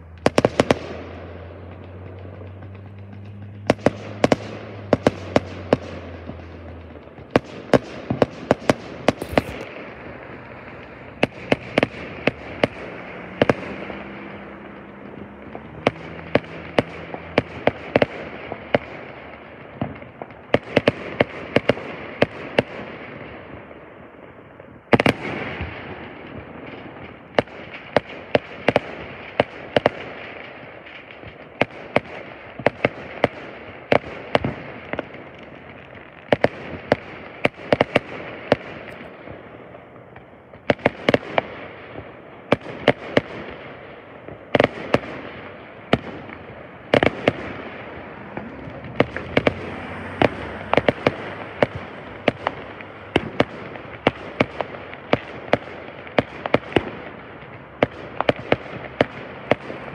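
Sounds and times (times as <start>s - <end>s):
firework crackle: 0.0s - 59.9s
firework shell bangs: 7.4s - 10.4s.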